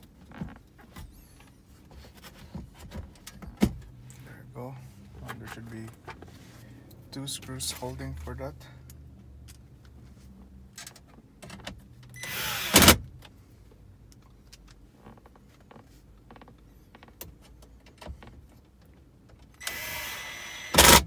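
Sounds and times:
cordless screwdriver whirring: 0:12.2 - 0:13.0, 0:19.6 - 0:21.0.

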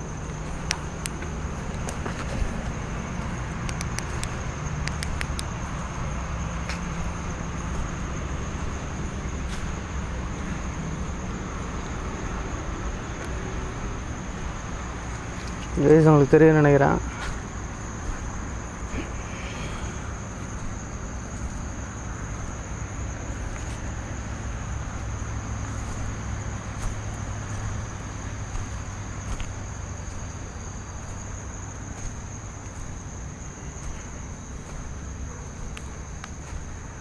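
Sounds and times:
crickets trilling: 0:00.0 - 0:37.0
faint clicks: 0:03.6 - 0:05.5.

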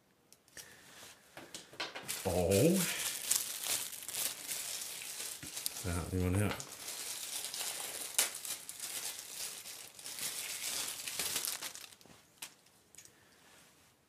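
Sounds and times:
plastic packaging crinkling: 0:02.0 - 0:13.1.

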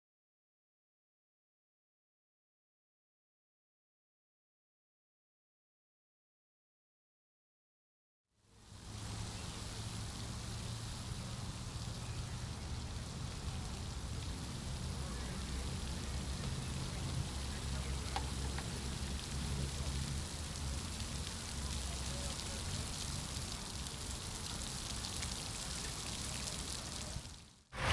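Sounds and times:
fountain water splashing: 0:08.4 - 0:27.9.

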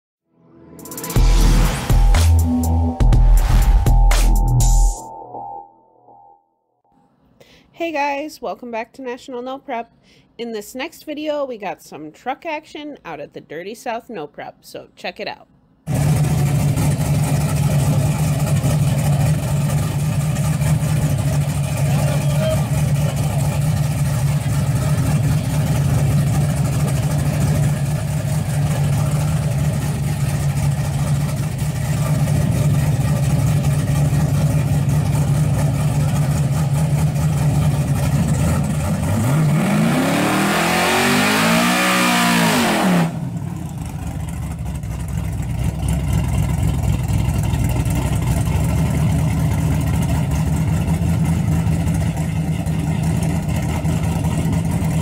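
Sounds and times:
engine revving: 0:00.8 - 0:04.8, 0:15.9 - 0:55.0
truck engine idling: 0:15.9 - 0:41.4, 0:42.0 - 0:55.0.

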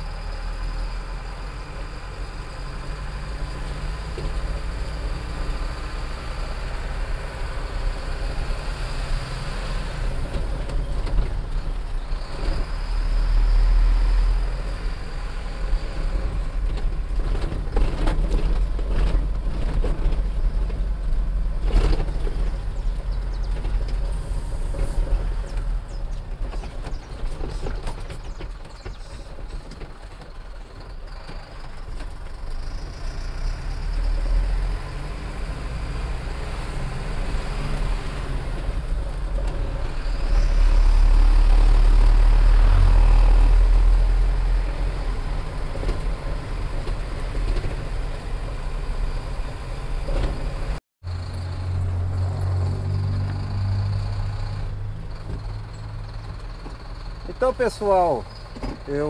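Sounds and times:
road noise: 0:00.0 - 0:59.0
truck engine rumble: 0:00.0 - 0:59.0.

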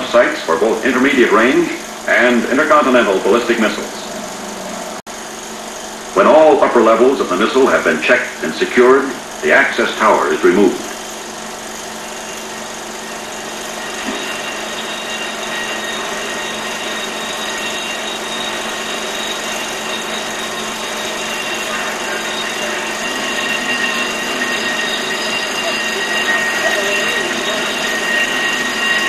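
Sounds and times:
machinery whirring with high whine: 0:00.0 - 0:29.0.

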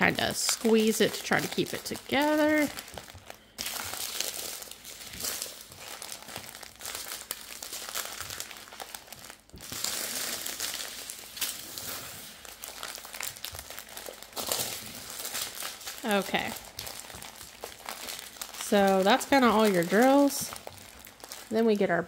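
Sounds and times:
plastic bags crinkling: 0:00.0 - 0:22.0.

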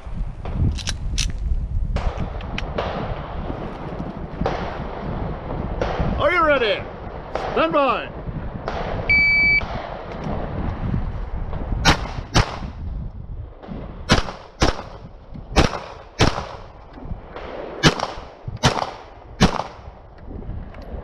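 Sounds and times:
pistol shots: 0:11.8 - 0:12.7, 0:14.0 - 0:16.7, 0:17.3 - 0:19.9.

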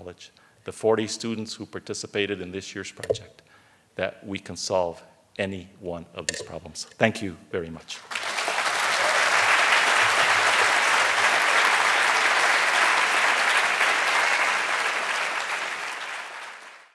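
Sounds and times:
audience applauding: 0:08.0 - 0:16.9.

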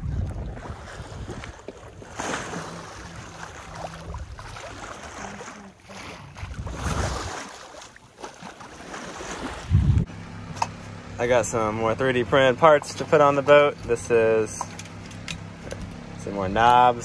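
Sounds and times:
sea water rushing along hull: 0:00.0 - 0:10.1.

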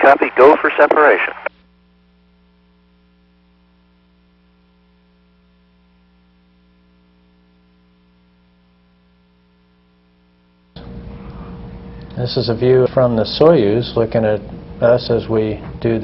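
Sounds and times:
faint electrical hum: 0:00.0 - 0:16.0.

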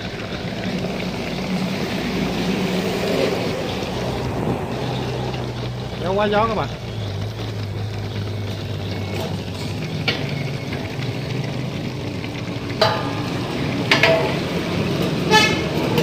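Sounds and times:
gas burner hissing: 0:00.0 - 0:16.0
sharp metal knocks: 0:12.7 - 0:16.0.

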